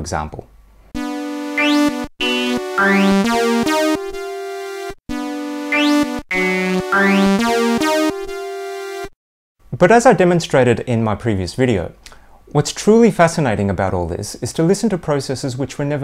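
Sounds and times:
brassy wavetable synth notes: 1.0s - 9.2s.

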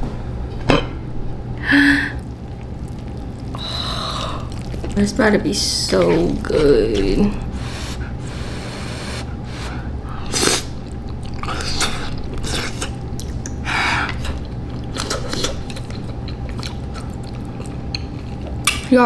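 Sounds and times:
slurping: 2.2s - 18.8s
person chewing noodles: 2.2s - 18.9s.

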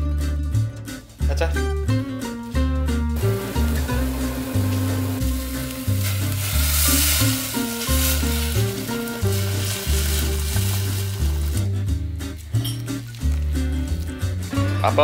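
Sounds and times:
background music with bass: 0.0s - 15.0s
water pouring: 3.2s - 11.6s
seaweed sizzling in a pot: 3.2s - 15.0s.

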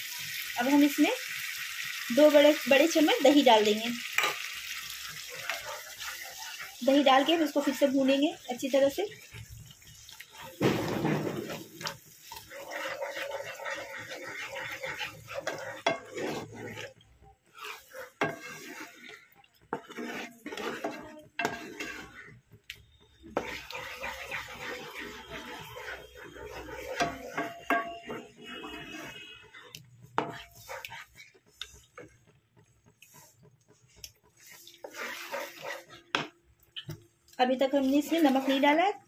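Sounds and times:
food frying: 0.0s - 39.0s
wooden spatula scraping pan: 2.1s - 39.0s.

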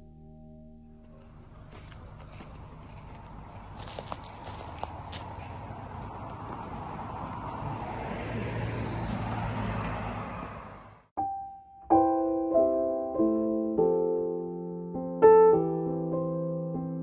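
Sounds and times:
low vehicle hum: 1.0s - 11.1s
solo piano music: 11.2s - 17.0s.

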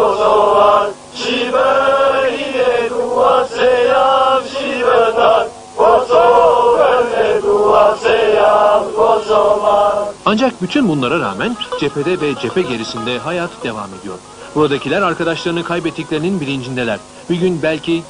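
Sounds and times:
men singing in unison: 0.0s - 10.2s.

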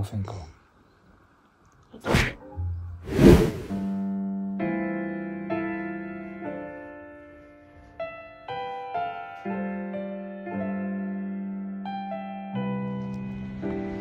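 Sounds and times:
slow piano music: 3.9s - 14.0s.

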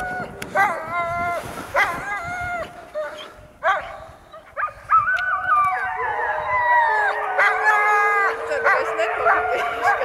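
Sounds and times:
dogs howling: 4.6s - 10.0s.

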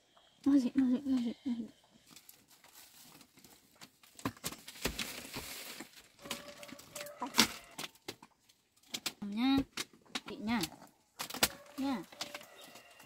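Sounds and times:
plastic bags rustling: 2.0s - 9.2s, 10.5s - 13.0s.

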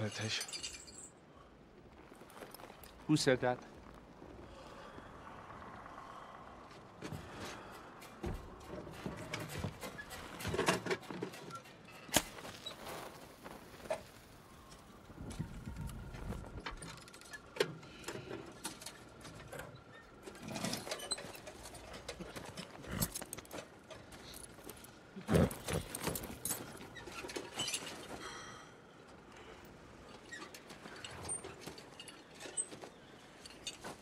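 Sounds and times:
metal clinks and jingles: 0.0s - 1.3s, 20.4s - 28.2s
horses shifting: 0.0s - 34.0s.

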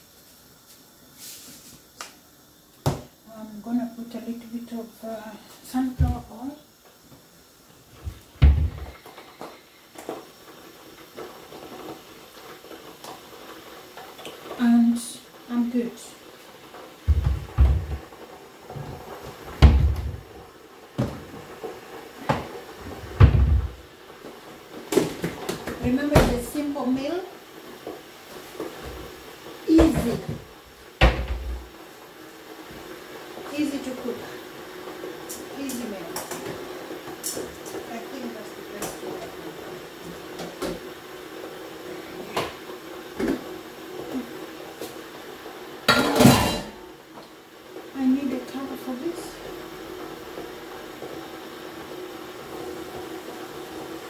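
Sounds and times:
cookware clattering: 45.9s - 46.8s.

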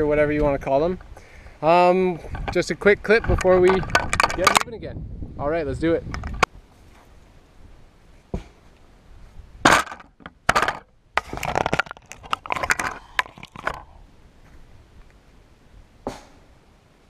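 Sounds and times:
twigs crackling under hands and knees: 11.2s - 13.9s.

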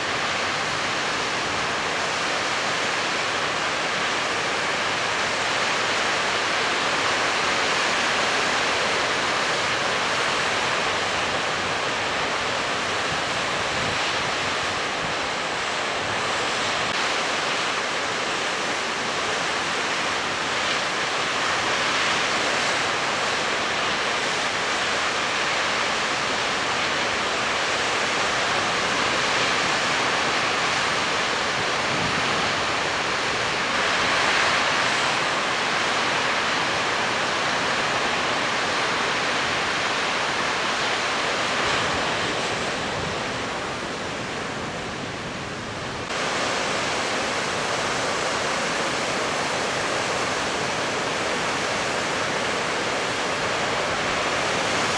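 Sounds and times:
heavy surf breaking: 7.9s - 54.9s.

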